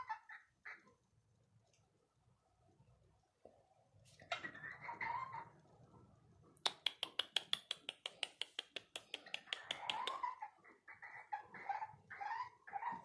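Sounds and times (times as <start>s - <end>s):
fast sharp clicks: 6.6s - 10.2s.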